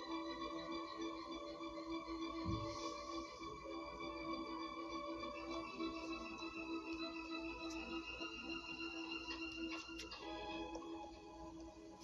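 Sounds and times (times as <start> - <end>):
background music with held notes: 0.0 - 12.0
soft low thump: 2.4 - 2.8.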